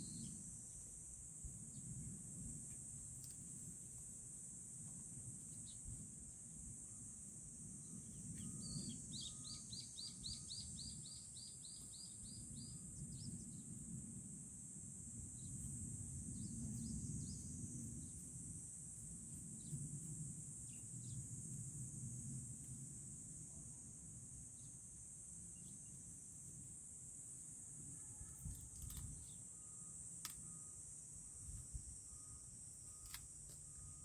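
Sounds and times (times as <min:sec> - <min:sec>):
insect drone: 0:00.0 - 0:34.0
bird chirping: 0:08.4 - 0:13.4.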